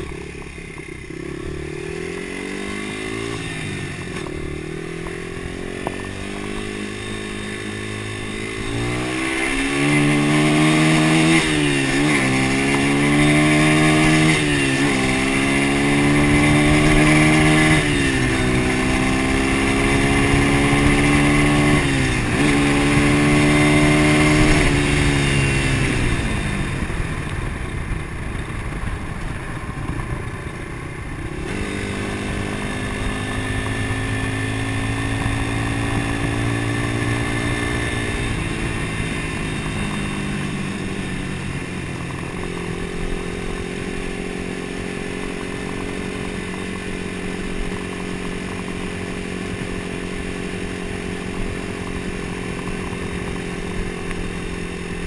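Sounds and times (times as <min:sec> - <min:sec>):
motorcycle engine shifting gears: 0:00.0 - 0:55.0.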